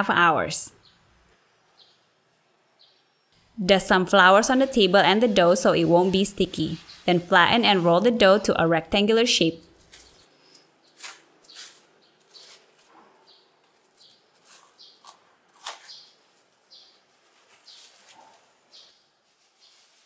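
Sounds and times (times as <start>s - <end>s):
plastic cling wrap crinkling: 9.8s - 13.0s, 13.6s - 20.0s.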